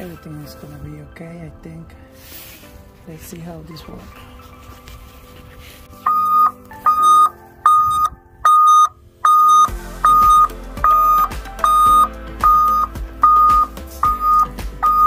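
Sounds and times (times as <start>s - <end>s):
backup alarm beeping: 6.1s - 15.0s.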